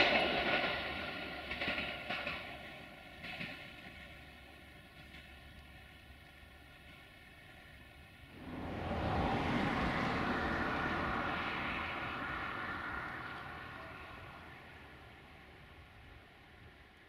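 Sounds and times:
car passing: 8.1s - 17.0s.

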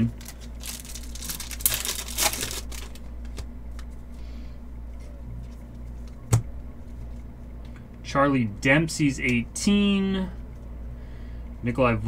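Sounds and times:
cards rustling: 0.0s - 3.4s
steady low hum: 0.0s - 12.0s.

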